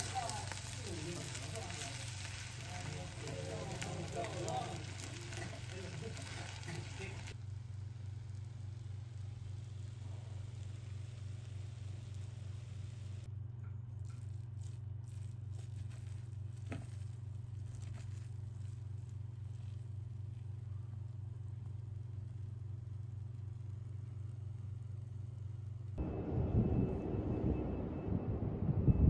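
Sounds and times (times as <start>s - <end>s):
faint crackles: 0.0s - 13.3s, 14.0s - 26.0s
steady low hum: 0.0s - 29.0s
rushing rumble: 26.0s - 29.0s.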